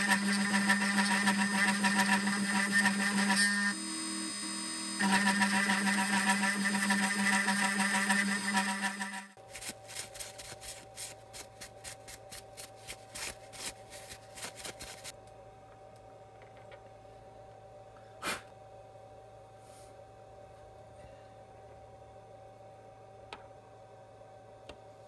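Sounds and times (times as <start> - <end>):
milling spindle whine: 0.0 - 9.4.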